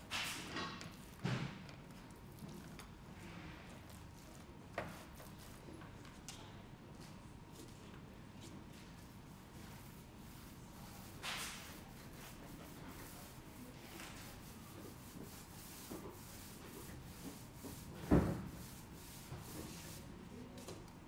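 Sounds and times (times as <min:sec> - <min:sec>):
rubbing against a wall panel: 0:10.2 - 0:20.0.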